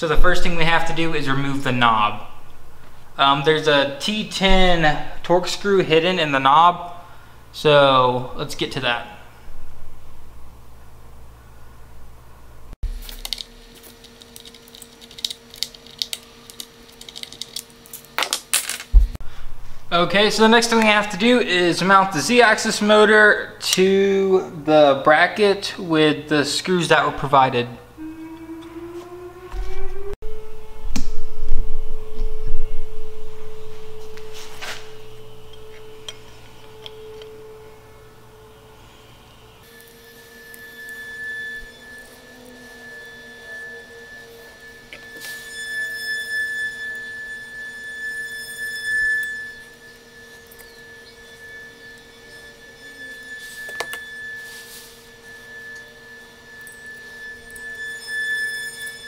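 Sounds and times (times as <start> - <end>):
faint steady hum: 0.0 - 59.0
warning siren steady tone: 27.7 - 59.0.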